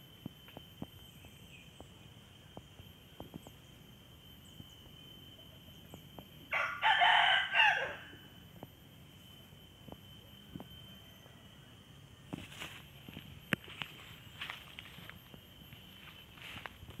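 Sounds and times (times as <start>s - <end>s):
rooster crowing: 6.5s - 8.4s.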